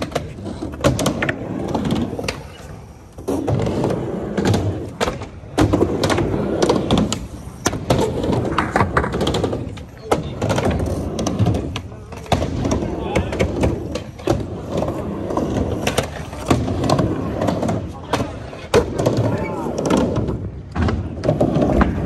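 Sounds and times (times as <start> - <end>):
skateboard clacking and knocking: 0.0 - 22.0
skateboard wheels rumbling: 0.0 - 22.0.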